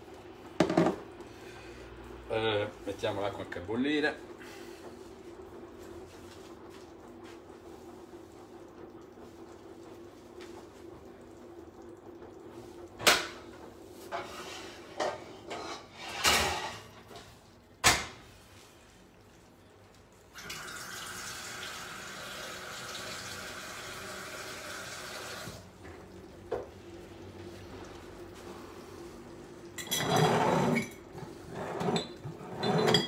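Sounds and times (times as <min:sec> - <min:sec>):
pots clanking: 0:00.5 - 0:01.1, 0:14.0 - 0:18.3, 0:29.8 - 0:33.0
kitchen tap running: 0:05.9 - 0:15.3, 0:15.9 - 0:33.0.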